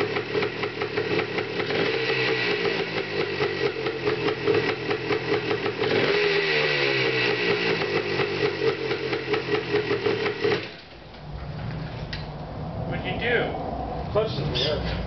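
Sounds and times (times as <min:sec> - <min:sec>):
three-wheeler engine running: 0:00.0 - 0:10.8
low hum: 0:11.0 - 0:15.0.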